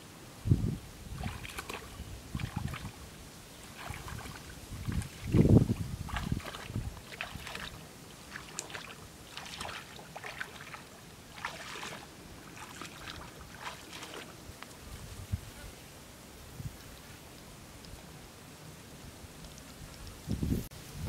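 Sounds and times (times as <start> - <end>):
wind buffeting microphone: 0.4 - 3.1, 3.8 - 7.8, 19.7 - 21.0
footsteps splashing in water: 1.2 - 3.0, 3.6 - 14.8.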